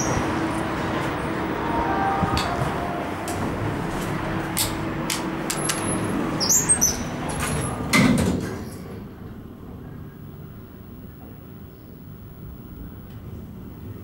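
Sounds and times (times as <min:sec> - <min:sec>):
elevator doors closing: 0:00.0 - 0:09.0
station background noise: 0:00.0 - 0:14.0.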